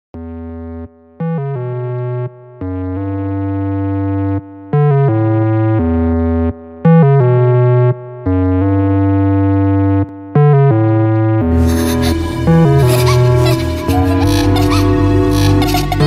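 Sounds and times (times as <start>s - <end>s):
background song with held chords: 11.4s - 16.0s.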